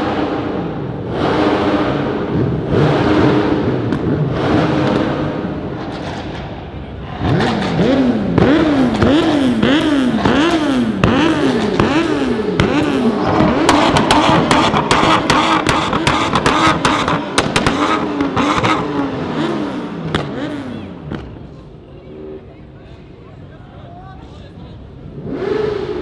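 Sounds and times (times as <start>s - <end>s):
car engine revving: 0.0s - 21.5s, 25.0s - 26.0s
exhaust cracks and pops: 12.6s - 18.8s.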